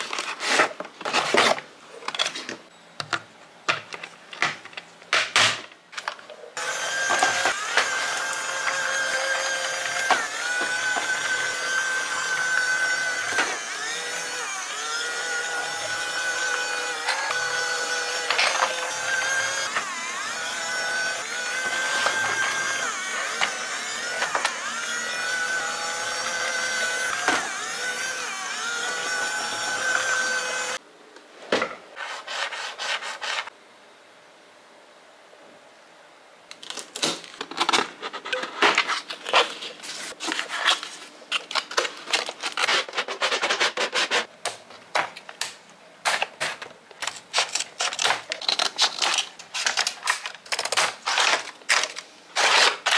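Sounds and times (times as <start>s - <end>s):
plastic parts being handled: 36.5s - 52.9s
scissors cutting packaging tape: 36.6s - 44.3s, 45.4s - 52.9s.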